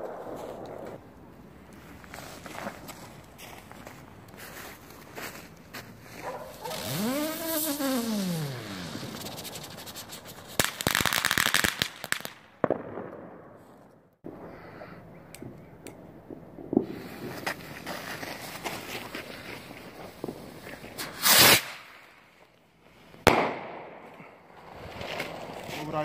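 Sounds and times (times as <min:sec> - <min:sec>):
firecrackers crackling: 0:00.0 - 0:02.1, 0:06.2 - 0:13.9, 0:15.4 - 0:26.0
firework bang: 0:23.3 - 0:24.0.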